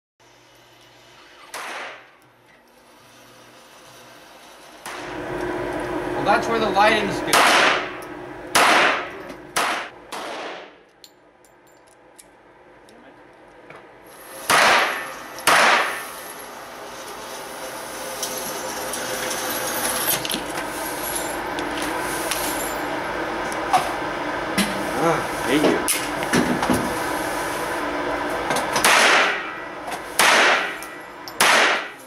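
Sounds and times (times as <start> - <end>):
pistol shots echoing: 8.6 - 10.7, 31.4 - 31.9.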